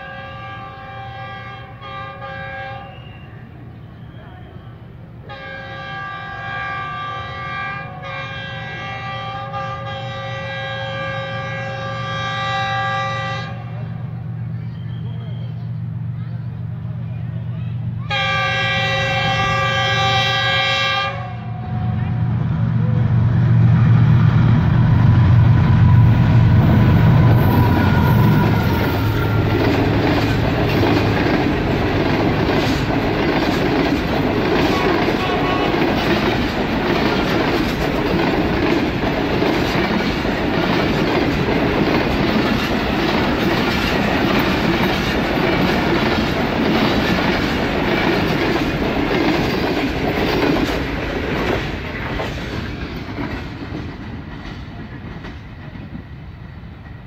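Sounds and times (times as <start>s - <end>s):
locomotive engine droning: 0.0s - 57.0s
train wheels clattering: 25.1s - 57.0s.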